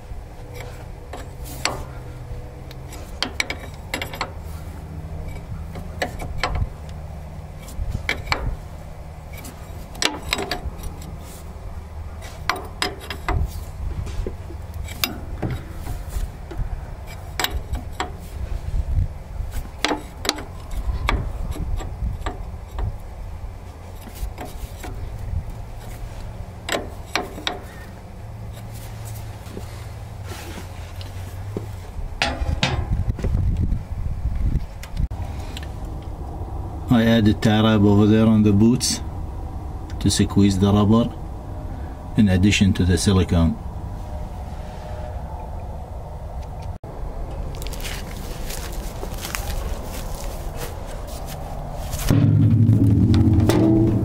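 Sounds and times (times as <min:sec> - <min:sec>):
hands rustling hoses: 0:00.0 - 0:33.5, 0:47.4 - 0:52.1
low steady rumble: 0:00.0 - 0:54.0.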